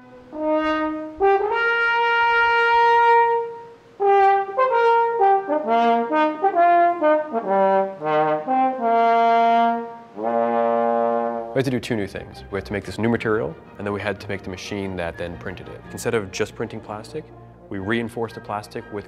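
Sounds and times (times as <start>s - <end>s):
french horn playing: 0.0s - 14.6s.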